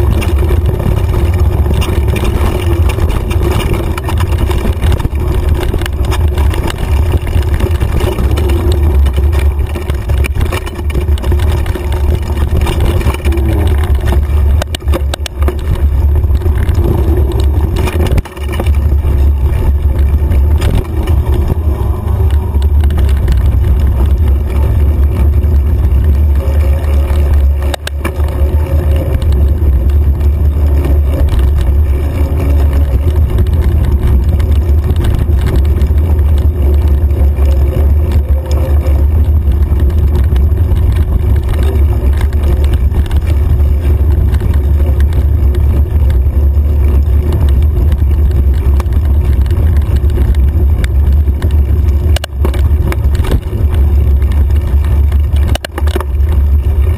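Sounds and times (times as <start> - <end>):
bike knocks and rattles: 0.0 - 56.9
bike trail vibration rumble: 0.0 - 56.9
wind buffeting: 0.0 - 56.9.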